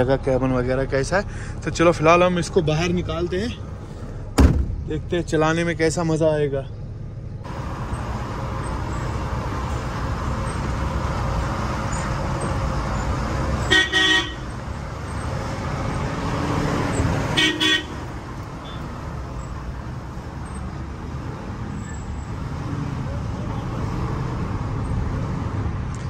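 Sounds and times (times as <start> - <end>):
truck diesel engine running: 0.0 - 23.7
truck horn blasts: 13.6 - 14.6, 17.3 - 18.9.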